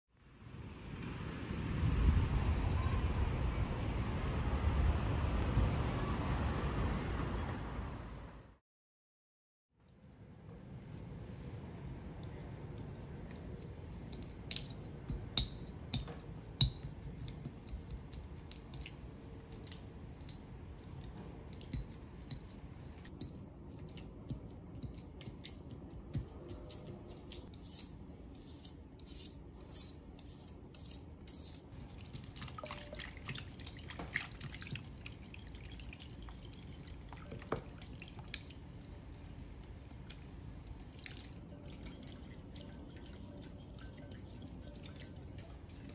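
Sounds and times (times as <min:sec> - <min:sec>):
cream cheese squelching: 0:10.0 - 0:45.9
whisk swishing mixture: 0:40.8 - 0:45.9.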